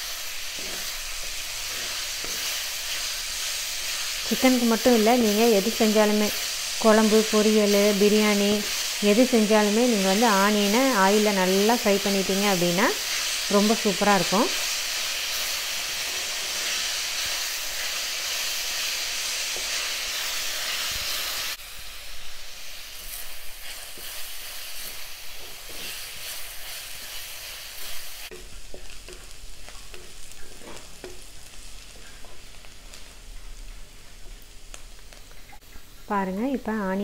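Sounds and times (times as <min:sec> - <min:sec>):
onions sizzling in hot oil: 0:00.0 - 0:37.0
wooden spatula scraping pan: 0:25.4 - 0:27.2.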